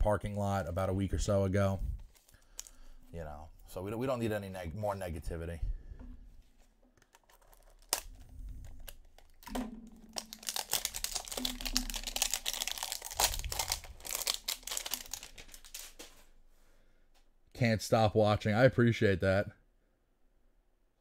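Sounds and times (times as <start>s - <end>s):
plastic shrink-wrap crackling: 7.0s - 16.3s.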